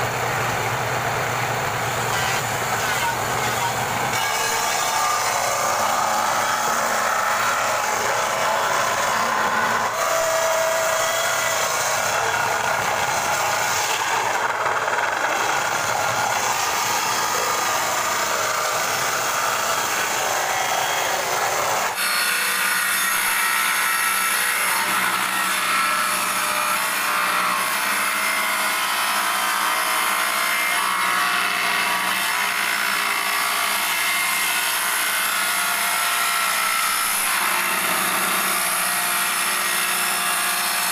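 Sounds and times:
power saw cutting timber: 0.0s - 40.9s.

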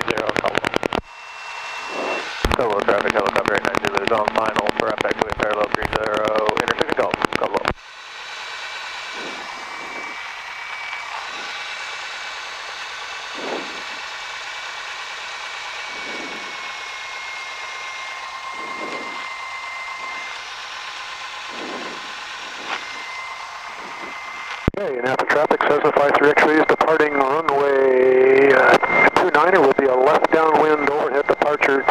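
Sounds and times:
aircraft engine droning: 0.0s - 31.9s
faint high whine: 0.0s - 31.9s.

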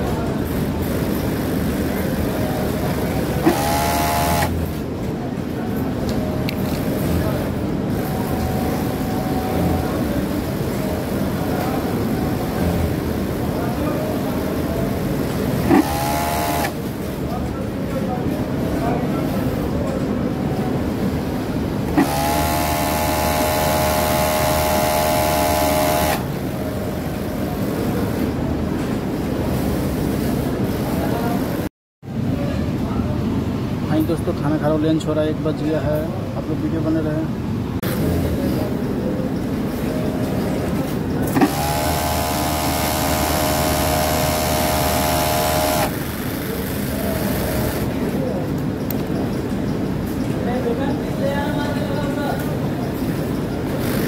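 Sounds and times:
factory machinery hum: 0.0s - 54.0s
sewing machine running: 0.6s - 4.8s, 15.5s - 16.9s, 21.9s - 26.6s, 41.3s - 48.0s, 53.7s - 54.0s
electric motor whine: 3.4s - 4.6s, 15.7s - 16.8s, 22.0s - 26.3s, 41.4s - 45.9s
motor starting knock: 3.4s - 4.6s, 15.7s - 16.8s, 22.0s - 26.3s, 41.3s - 46.0s.

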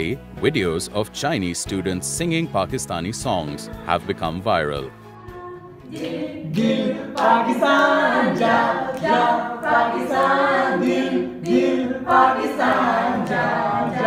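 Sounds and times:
group singing unaccompanied: 5.3s - 14.0s.

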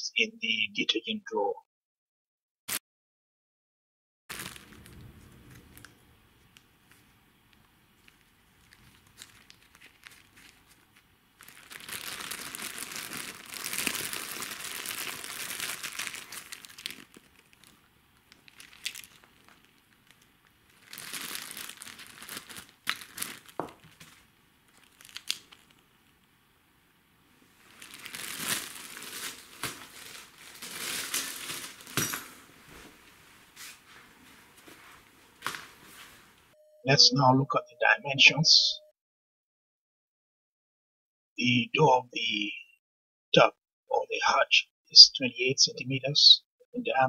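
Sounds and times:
plastic bag crinkling: 4.3s - 5.9s, 8.0s - 26.2s, 27.6s - 32.6s.

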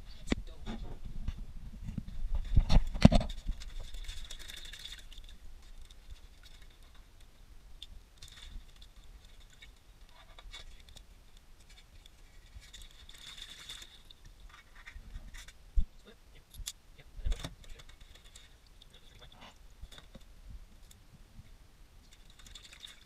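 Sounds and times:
hands cleaning crabs in water: 3.1s - 15.5s, 22.1s - 23.0s.

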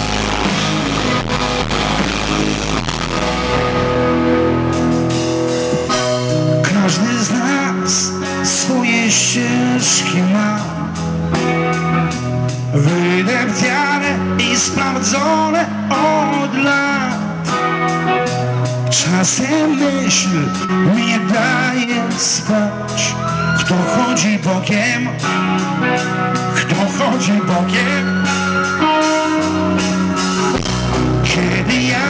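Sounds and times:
live rock band playing: 0.0s - 32.0s
man singing: 6.2s - 11.5s, 12.5s - 32.0s.

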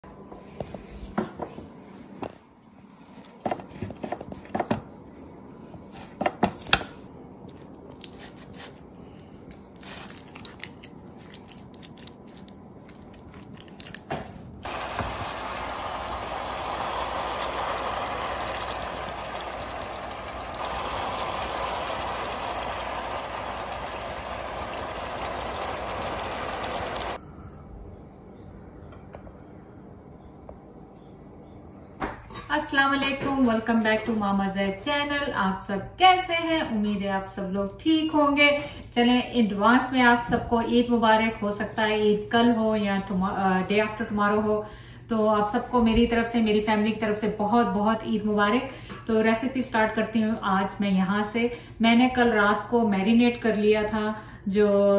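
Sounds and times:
steady hissing water-like noise: 14.6s - 27.3s.

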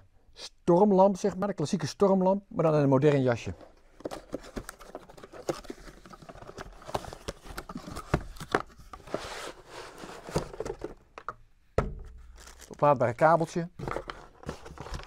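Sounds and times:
cardboard rustling and sliding: 4.0s - 11.0s, 13.8s - 15.0s.

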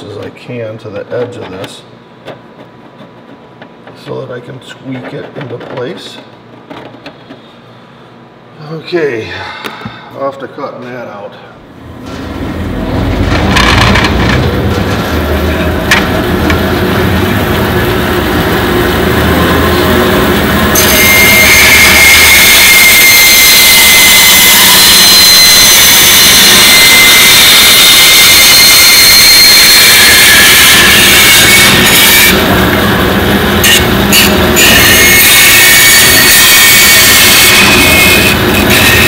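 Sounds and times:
bandsaw running: 30.3s - 39.0s
bandsaw cutting plastic: 37.1s - 39.0s.

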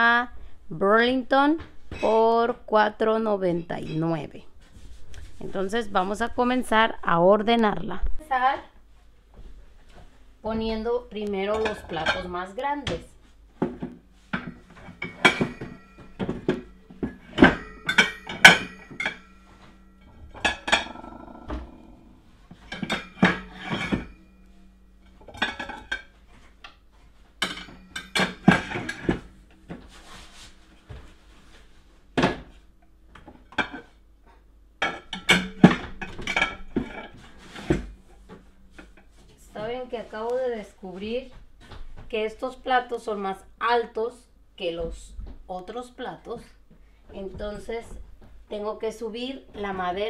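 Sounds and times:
plates clinking in a rack: 11.6s - 13.0s, 13.6s - 21.8s, 22.5s - 26.8s, 27.4s - 31.6s, 34.8s - 39.4s.

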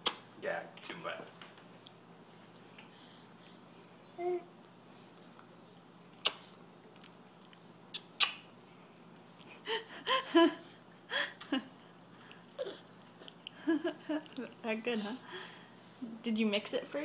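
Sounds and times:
baby babbling: 4.2s - 4.5s.

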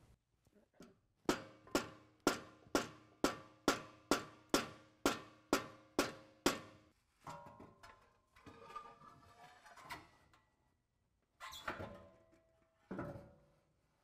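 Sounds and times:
hammer striking metal pipe: 1.3s - 6.8s.

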